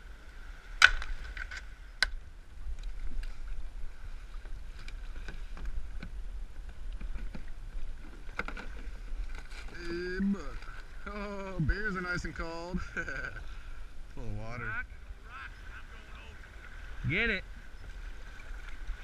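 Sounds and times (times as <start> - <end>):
water sloshing against hulls: 2.7 - 14.1, 14.8 - 19.0
kayaks knocking: 4.4 - 19.0.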